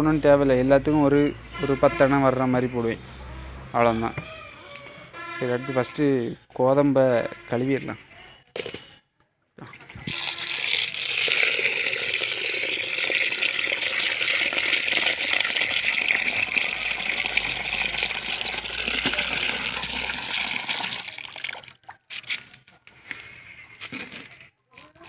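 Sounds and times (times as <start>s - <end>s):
tap water pouring into tub: 9.7s - 22.0s.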